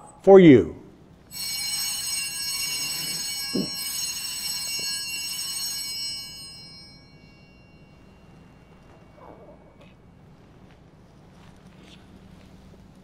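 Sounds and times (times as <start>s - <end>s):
altar bells jingling: 1.3s - 9.2s.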